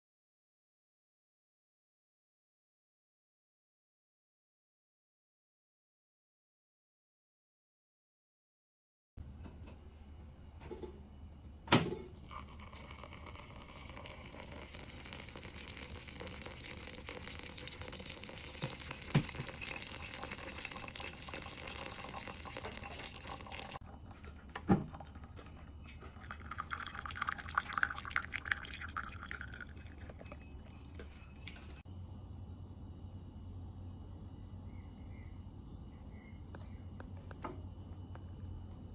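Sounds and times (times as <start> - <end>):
coffee dripping into mug: 12.1 - 31.8
water pouring onto coffee grounds: 12.2 - 31.8.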